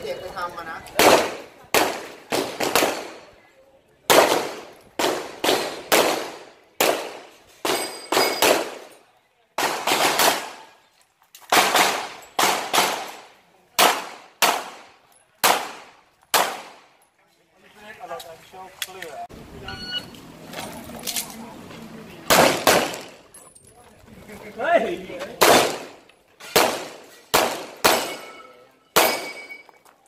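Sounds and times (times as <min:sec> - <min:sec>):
bullets ringing on steel targets: 0:07.6 - 0:09.0, 0:27.8 - 0:30.0
handgun shots: 0:09.6 - 0:10.7, 0:13.8 - 0:16.8, 0:22.3 - 0:23.2, 0:25.4 - 0:28.4, 0:29.0 - 0:29.6.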